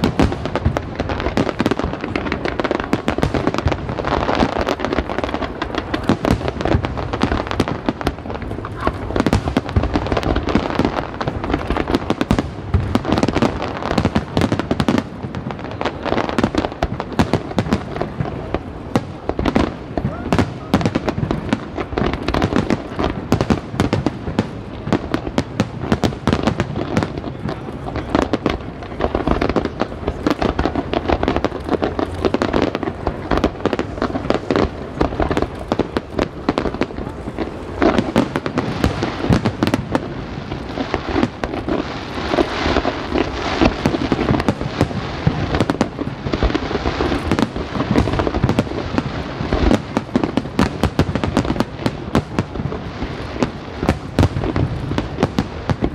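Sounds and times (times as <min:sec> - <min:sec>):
aerial fireworks bursting: 0:00.0 - 0:55.9.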